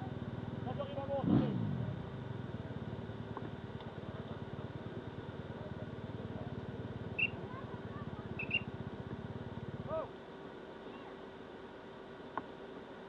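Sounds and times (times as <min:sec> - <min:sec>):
quad bike engine running: 0:00.0 - 0:10.3.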